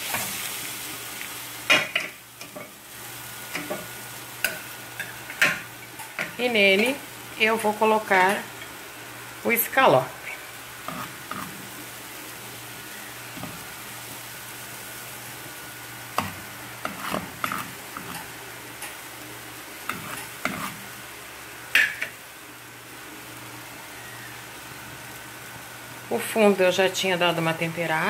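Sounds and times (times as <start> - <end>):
meat sizzling in a frying pan: 0.0 - 28.0
utensil scraping and knocking pan: 16.2 - 18.3.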